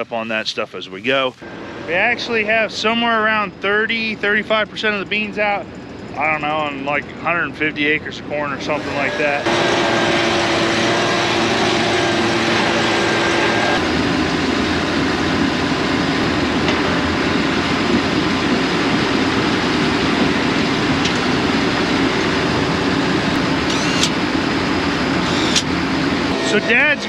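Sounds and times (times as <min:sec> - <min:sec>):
leaf blower running: 0:08.6 - 0:16.0, 0:21.1 - 0:24.3.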